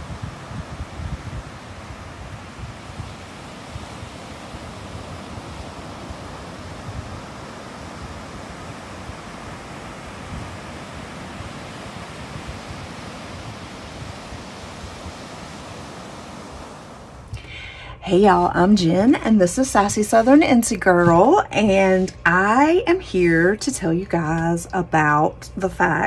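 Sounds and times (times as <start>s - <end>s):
waves breaking on beach: 0.0s - 17.4s
wind on microphone: 0.0s - 17.4s.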